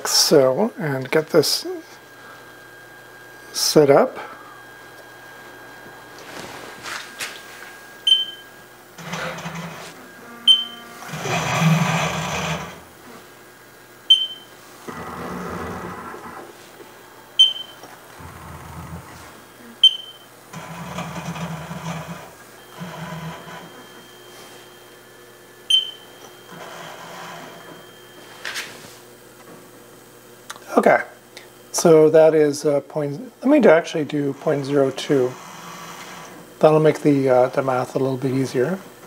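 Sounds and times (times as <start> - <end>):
short high controller beep: 8.1 - 8.4, 10.5 - 10.9, 14.1 - 14.5, 17.4 - 17.8, 19.8 - 20.2, 25.7 - 26.0
milling machine motor moves: 8.9 - 13.2, 20.5 - 25.2, 26.2 - 28.7, 34.1 - 36.5.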